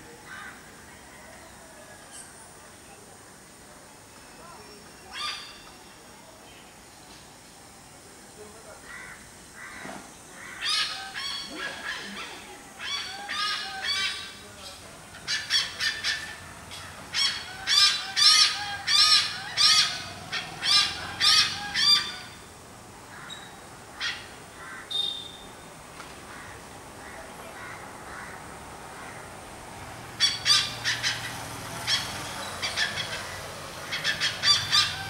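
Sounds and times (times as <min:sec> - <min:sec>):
hornbill calling harshly: 0:08.8 - 0:22.5, 0:23.1 - 0:25.5, 0:26.3 - 0:29.4, 0:30.0 - 0:35.0.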